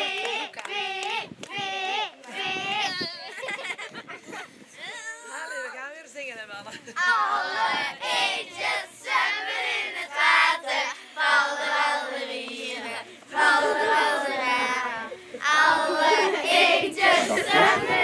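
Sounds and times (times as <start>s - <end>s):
children singing: 11.4s - 18.0s.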